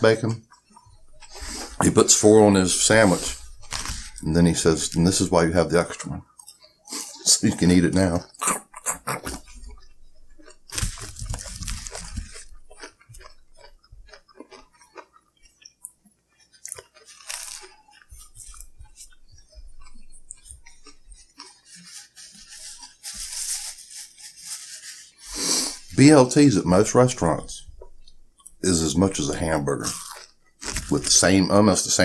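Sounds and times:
chewing and crunching: 0:00.0 - 0:32.0
paper napkin rustling: 0:01.2 - 0:05.3, 0:21.8 - 0:26.0.

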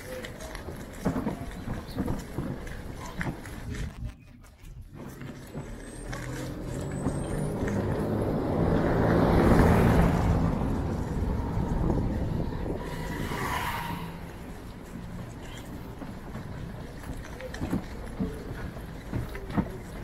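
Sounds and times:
motor vehicle passing: 0:05.0 - 0:20.0.

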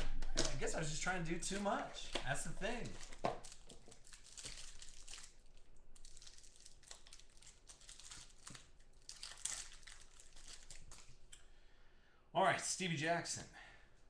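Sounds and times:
wrapper crinkling: 0:00.7 - 0:11.3.

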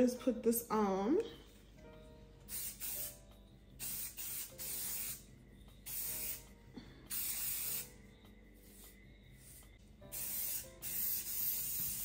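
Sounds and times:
spray can hissing: 0:02.5 - 0:03.2, 0:03.8 - 0:06.5, 0:07.1 - 0:08.0, 0:09.5 - 0:12.0.

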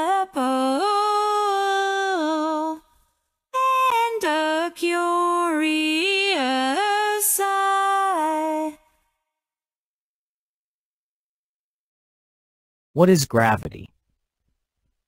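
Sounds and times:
woman singing slow melody: 0:00.0 - 0:03.0, 0:03.6 - 0:08.9.

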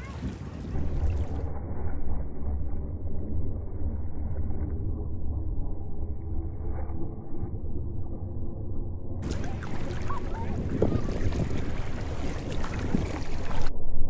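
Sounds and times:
wind buffeting microphone: 0:00.0 - 0:03.1, 0:09.2 - 0:13.7.

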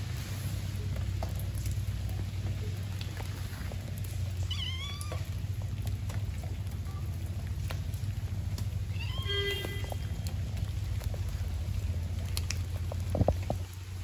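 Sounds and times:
low background rumble: 0:00.0 - 0:14.0
kitten meowing: 0:04.5 - 0:05.3, 0:08.9 - 0:09.8
faint ticks: 0:09.6 - 0:13.7.

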